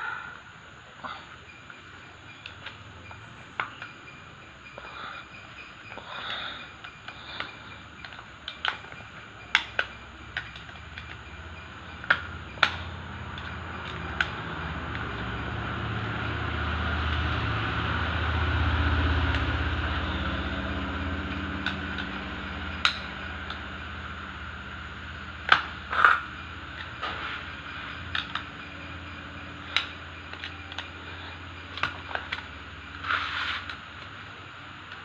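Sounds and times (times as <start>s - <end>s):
low engine-like drone: 0.0s - 35.0s
metal tools clicking: 1.7s - 15.0s, 25.4s - 34.2s.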